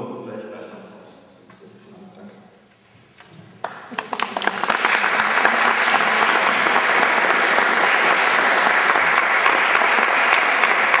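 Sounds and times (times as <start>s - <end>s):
audience applause: 3.6s - 11.0s.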